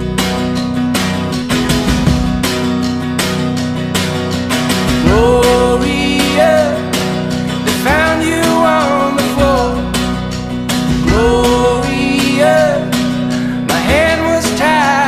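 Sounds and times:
guitar with steady beat: 0:00.0 - 0:15.0
person singing: 0:05.0 - 0:15.0.

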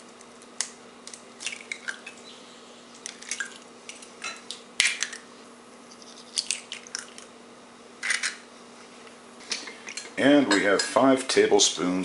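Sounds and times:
eggshells cracking: 0:03.0 - 0:05.3, 0:05.9 - 0:07.3.

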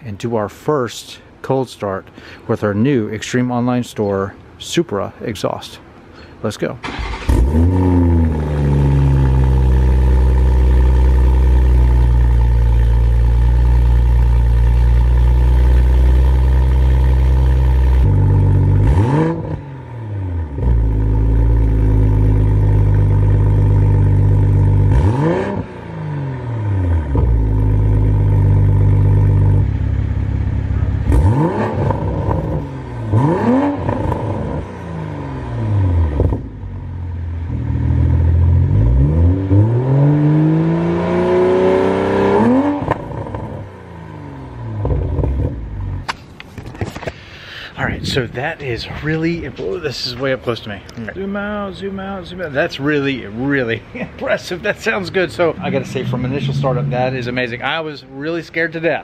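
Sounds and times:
car engine starting and idling: 0:06.6 - 0:50.1, 0:50.7 - 0:59.0
engine throttle blips: 0:06.8 - 0:46.1, 0:53.8 - 0:58.3.

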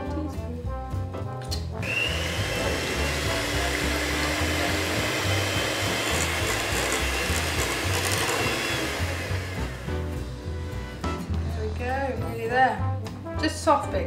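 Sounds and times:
electric hand mixer running: 0:01.8 - 0:11.2.

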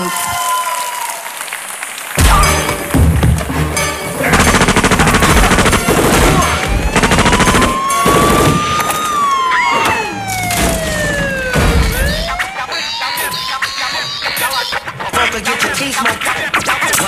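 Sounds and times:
machine-gun fire: 0:04.3 - 0:08.8
wailing siren: 0:04.8 - 0:14.9.

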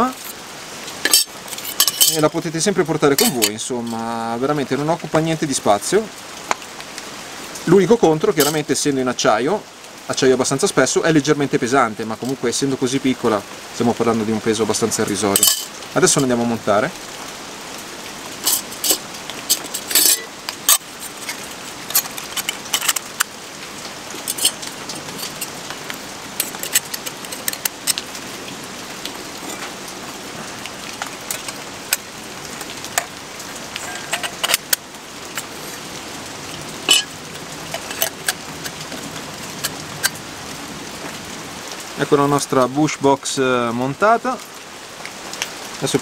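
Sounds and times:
steady rain hissing: 0:00.0 - 0:46.0
steel plates clinking and scraping: 0:01.0 - 0:02.4, 0:03.1 - 0:04.0, 0:08.4 - 0:08.6, 0:15.2 - 0:16.5, 0:18.4 - 0:23.3, 0:24.1 - 0:28.0, 0:29.3 - 0:29.8, 0:30.9 - 0:35.9, 0:36.9 - 0:39.0.

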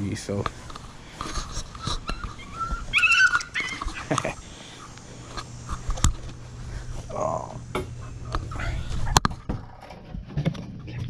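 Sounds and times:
small dog whimpering: 0:01.9 - 0:04.1.

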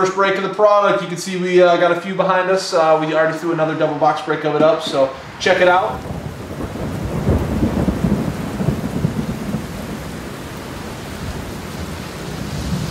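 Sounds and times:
thunder rumbling and crackling: 0:04.5 - 0:12.9.

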